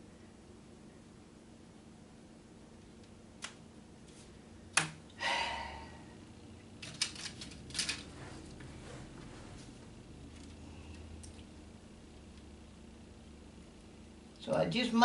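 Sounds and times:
plastic track pieces clicking: 0:06.8 - 0:08.0.

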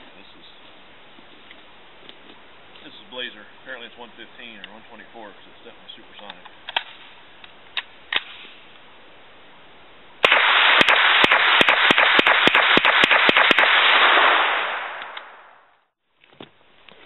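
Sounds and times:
submachine gun firing: 0:10.2 - 0:15.6.

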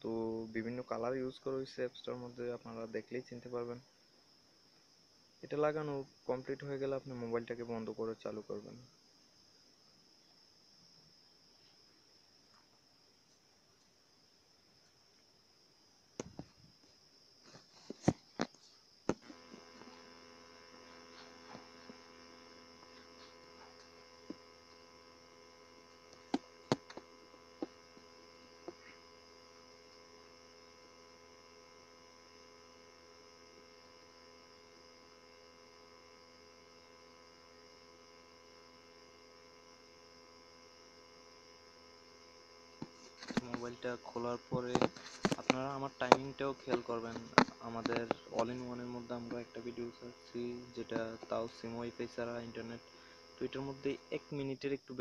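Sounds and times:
steady electrical hum: 0:00.0 - 0:55.0
sharp clicks and taps: 0:44.6 - 0:48.6.

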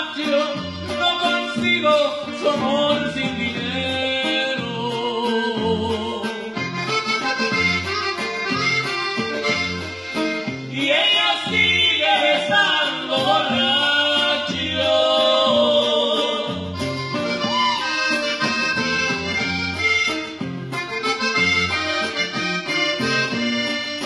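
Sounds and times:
button accordion melody: 0:00.0 - 0:04.0, 0:05.8 - 0:24.0
bajo sexto strumming: 0:00.0 - 0:24.0
bouncing bass: 0:16.5 - 0:24.0.

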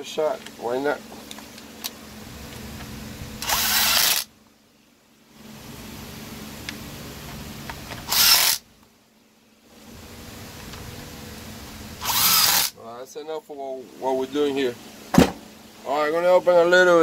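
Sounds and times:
cordless drill whirring: 0:03.4 - 0:04.3, 0:08.0 - 0:08.6, 0:12.0 - 0:12.7.

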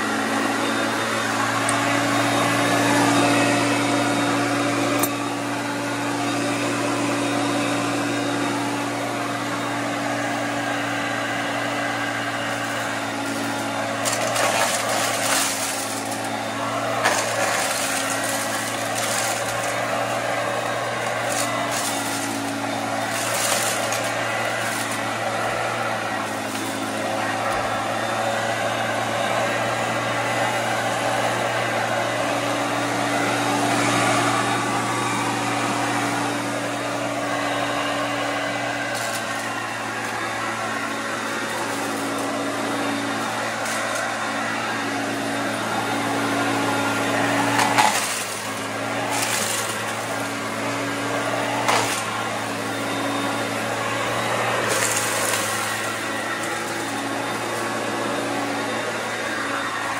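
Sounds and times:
vacuum cleaner humming: 0:00.0 - 0:59.9
nuts crunching in vacuum: 0:13.2 - 0:19.9.

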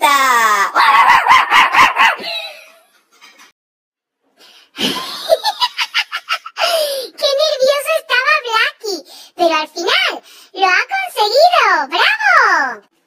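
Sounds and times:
high-pitched cartoon laughter: 0:00.8 - 0:03.5, 0:04.9 - 0:07.0.

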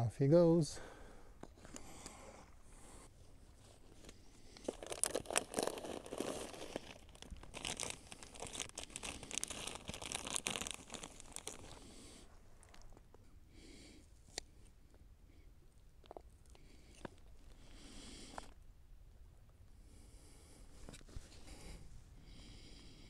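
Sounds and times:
plastic bag crinkling: 0:04.6 - 0:11.8.

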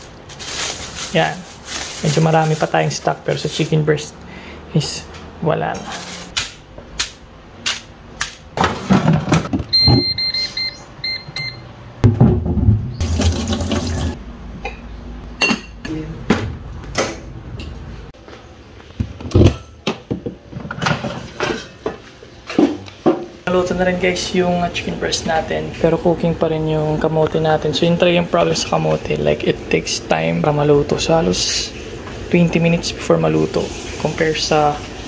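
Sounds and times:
electronic beeps: 0:09.7 - 0:11.7
knocks of containers and pots: 0:12.0 - 0:13.0
tap water running into sink: 0:13.0 - 0:14.2
washing potatoes in water: 0:13.0 - 0:14.2.

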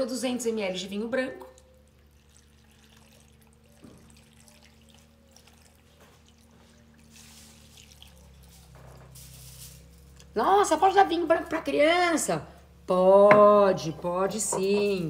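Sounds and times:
wine trickling and splashing: 0:01.5 - 0:10.3.

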